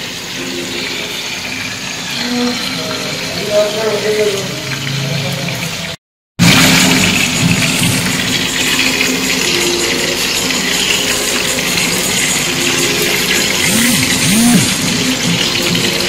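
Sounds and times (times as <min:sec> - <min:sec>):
oil sizzling in a frying pan: 0:06.4 - 0:13.5.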